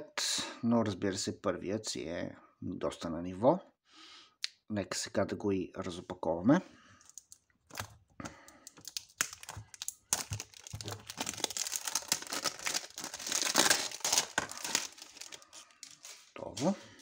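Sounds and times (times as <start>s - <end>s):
plastic shrink-wrap crinkling: 7.0s - 16.4s.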